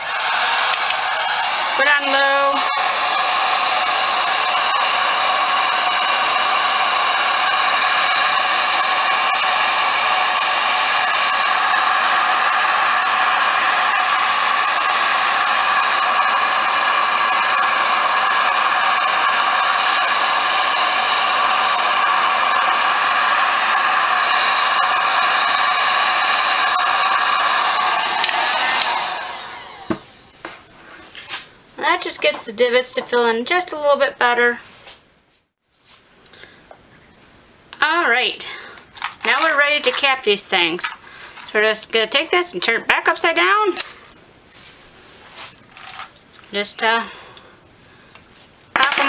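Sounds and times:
heat gun blowing hot air: 0.0s - 30.5s, 38.5s - 42.3s, 48.8s - 49.0s.

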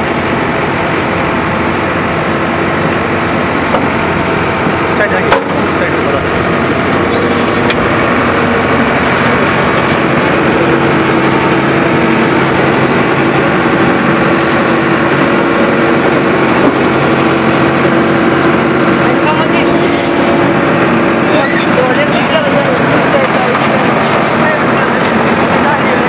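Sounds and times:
tractor diesel engine running: 0.0s - 26.0s.

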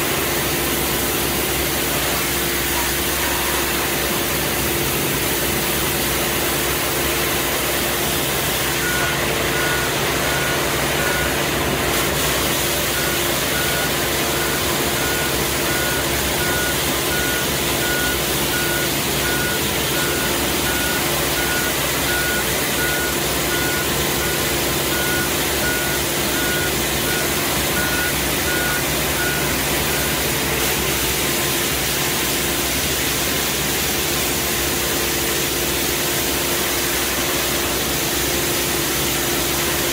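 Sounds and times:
street sweeper engine drone: 0.0s - 39.9s
electronic warning beeper: 12.9s - 30.2s.

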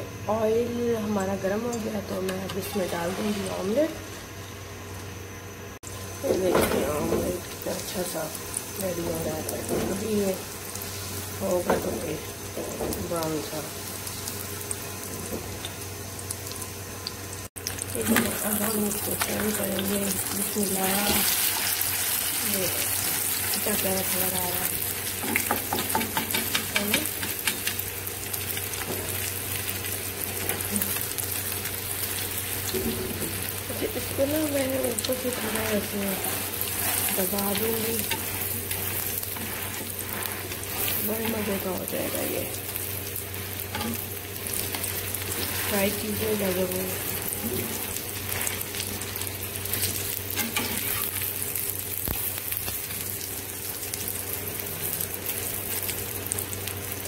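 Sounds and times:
omelette sizzling in oil: 1.3s - 57.0s
spatula scraping pan: 35.2s - 41.7s.

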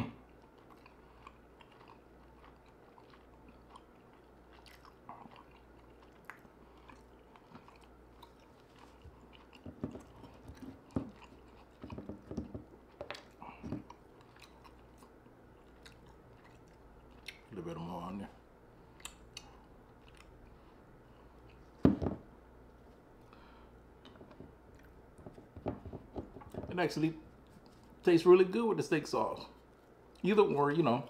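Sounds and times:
chewing with wet mouth clicks: 0.2s - 17.5s, 18.9s - 20.5s, 24.0s - 25.5s.

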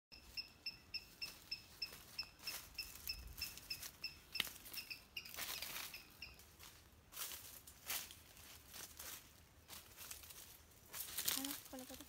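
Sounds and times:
short high chirps: 0.1s - 6.4s.

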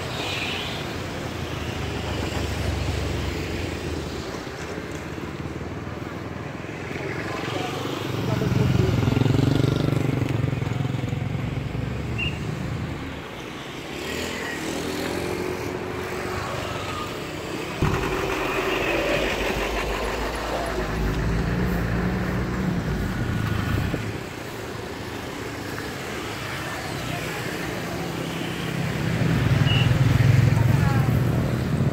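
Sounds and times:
motorcycles and cars passing: 0.0s - 31.9s
loud vehicle passing: 13.8s - 24.6s.

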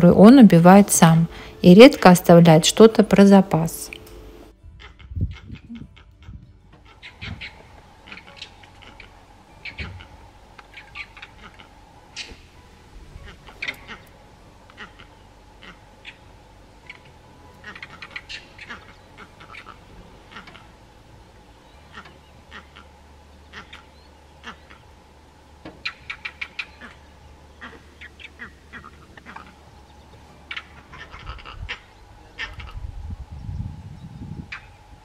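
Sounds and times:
monkeys giving alarm calls: 4.8s - 12.5s, 13.2s - 14.1s, 14.7s - 20.8s, 21.8s - 24.9s, 25.8s - 29.7s, 30.4s - 32.8s.

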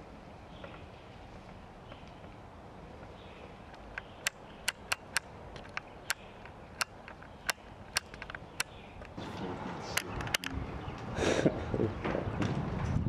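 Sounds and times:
sharp clicks and snaps: 3.7s - 9.2s, 10.0s - 11.1s.

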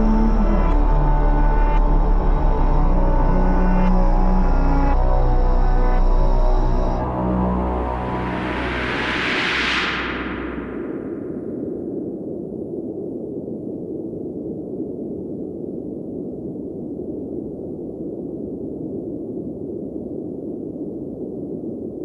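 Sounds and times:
dark ambient drone: 0.0s - 12.2s.

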